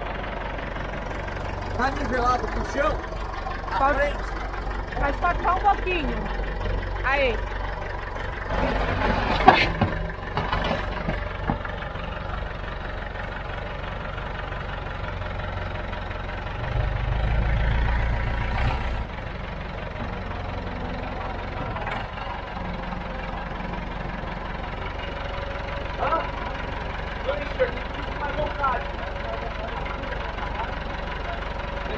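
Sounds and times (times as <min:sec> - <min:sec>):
tractor engine idling: 0:00.0 - 0:31.9
knocks and clanks: 0:08.2 - 0:12.0.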